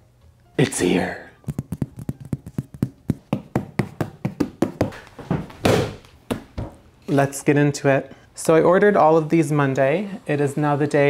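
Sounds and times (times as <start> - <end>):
rapid knocking and tapping: 1.4 - 5.0.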